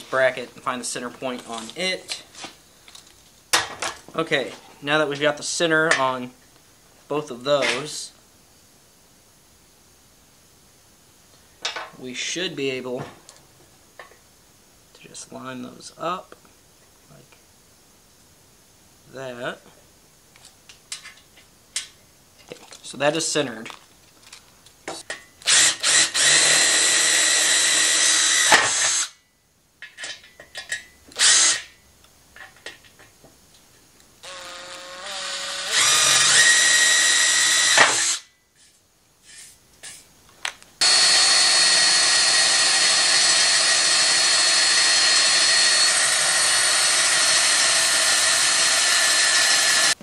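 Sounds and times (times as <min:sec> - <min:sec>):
power drill drilling steel: 0:25.4 - 0:29.2, 0:31.1 - 0:31.7, 0:34.2 - 0:38.3, 0:40.8 - 0:50.0.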